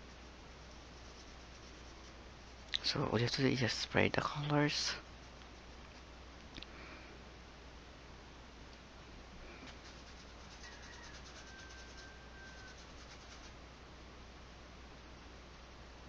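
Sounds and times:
low steady hum: 0:00.0 - 0:16.0
brush scratching on canvas: 0:00.1 - 0:02.7, 0:09.6 - 0:13.6.

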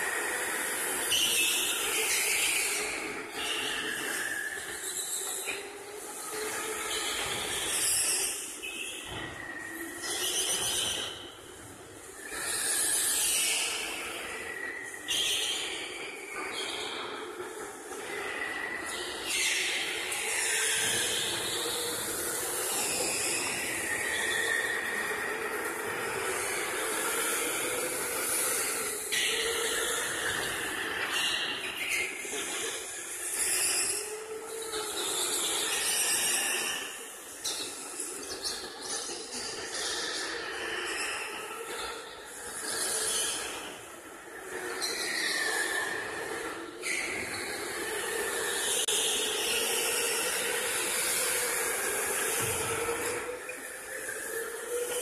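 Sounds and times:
electric go-karts whirring past: 0:00.0 - 0:55.0
go-kart motor whine passing: 0:45.6 - 0:55.0.

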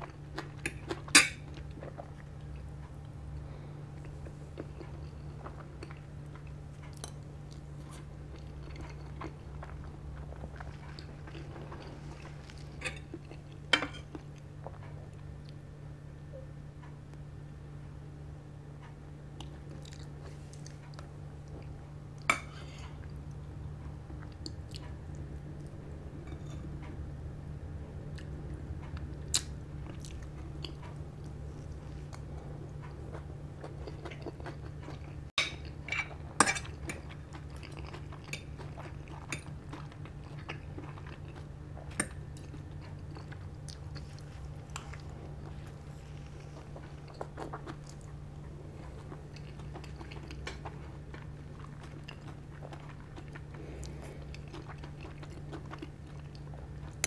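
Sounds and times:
steady low hum: 0:00.0 - 0:57.0
chewing and biting food: 0:04.0 - 0:15.6, 0:28.1 - 0:57.0.

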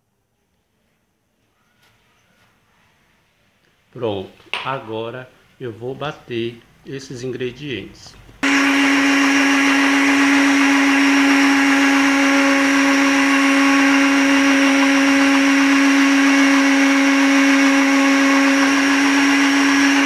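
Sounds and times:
blender motor running: 0:08.4 - 0:20.0.

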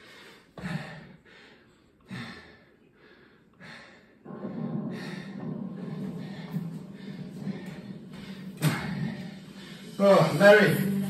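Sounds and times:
steady low sound: 0:04.2 - 0:11.0.

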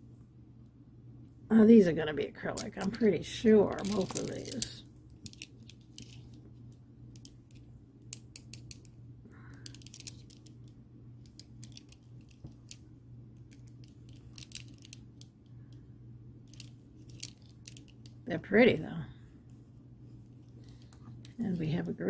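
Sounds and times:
faint low hum: 0:00.0 - 0:22.0
beads clicking: 0:03.7 - 0:06.5, 0:07.1 - 0:15.8, 0:16.4 - 0:18.2.

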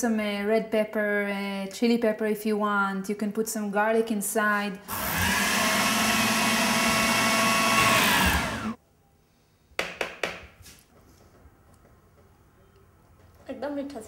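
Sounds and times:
food processor running: 0:04.9 - 0:08.8.

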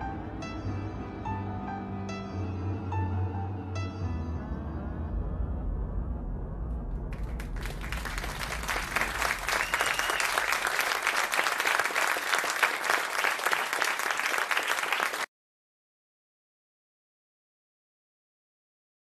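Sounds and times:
audience applauding: 0:07.1 - 0:15.3.

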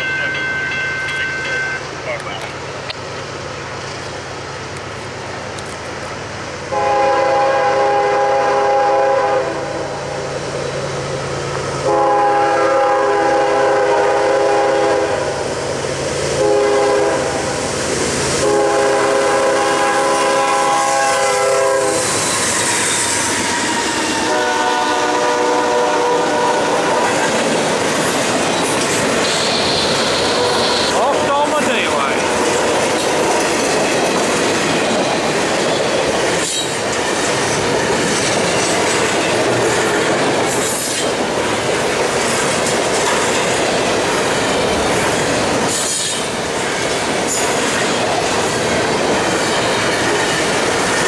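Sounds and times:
train rumbling past: 0:00.0 - 0:51.0
locomotive air horn blasts: 0:06.7 - 0:10.0, 0:11.8 - 0:15.4, 0:16.4 - 0:17.5, 0:18.4 - 0:27.2, 0:29.3 - 0:31.3
wheels clacking on rail joints: 0:26.3 - 0:51.0.

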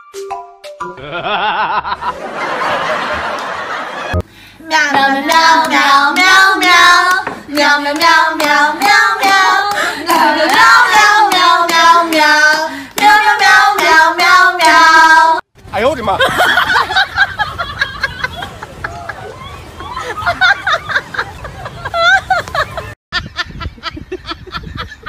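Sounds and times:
high-pitched singing voice: 0:04.6 - 0:15.4.

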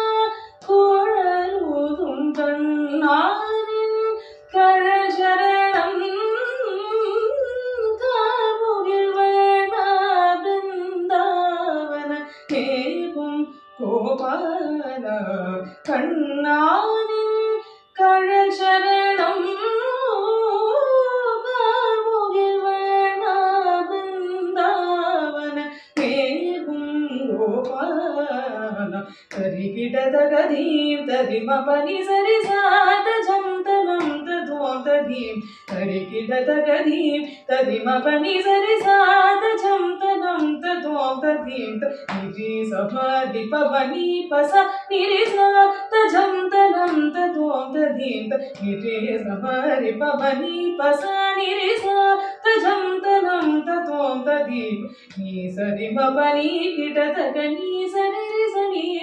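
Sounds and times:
woman singing unaccompanied: 0:00.0 - 0:59.0.

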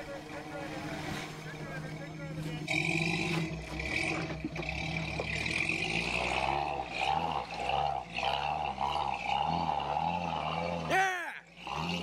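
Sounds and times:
engine running under load: 0:00.0 - 0:12.0.

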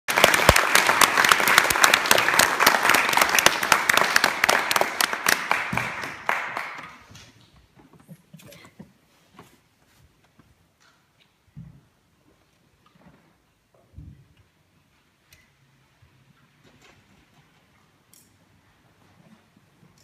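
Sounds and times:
audience applauding: 0:00.1 - 0:07.2.

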